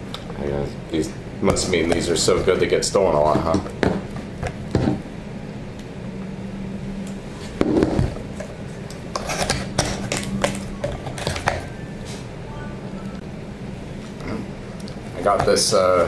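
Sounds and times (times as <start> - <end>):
low hum: 2.7 - 15.1.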